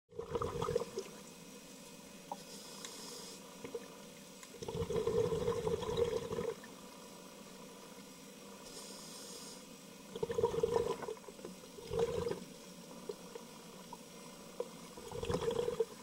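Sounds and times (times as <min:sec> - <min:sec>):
exhaled bubbles gurgling: 0:00.1 - 0:01.2, 0:04.6 - 0:06.7, 0:10.1 - 0:16.0
regulator inhalation hiss: 0:02.3 - 0:03.6, 0:08.2 - 0:10.1.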